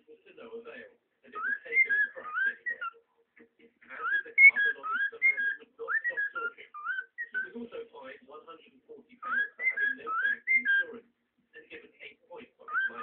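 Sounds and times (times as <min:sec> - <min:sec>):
cockatiel scratchy chatter: 0:01.4 - 0:03.0, 0:03.9 - 0:07.5, 0:09.2 - 0:10.9, 0:12.6 - 0:13.0
cockatiel whistling song: 0:01.4 - 0:03.0, 0:04.0 - 0:07.6, 0:09.2 - 0:10.9, 0:12.7 - 0:13.0.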